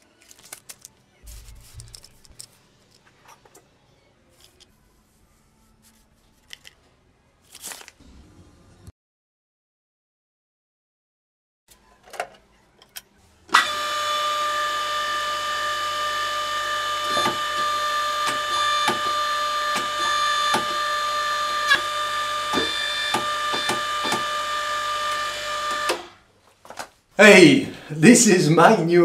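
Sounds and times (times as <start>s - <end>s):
electric motor and pump whining: 13.5s - 26.2s.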